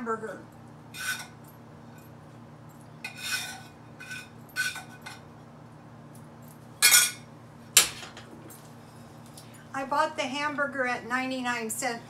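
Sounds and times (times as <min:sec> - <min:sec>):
spatula scraping frying pan: 0:01.0 - 0:01.4, 0:03.0 - 0:05.0.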